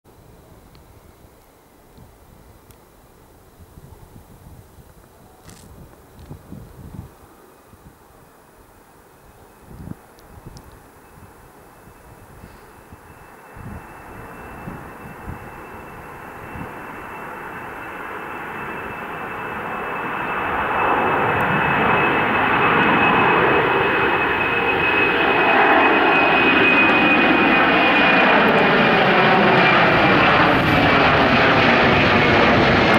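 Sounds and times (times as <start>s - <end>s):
high jet whine: 8.2s - 32.9s
jet engine roar: 9.0s - 32.9s.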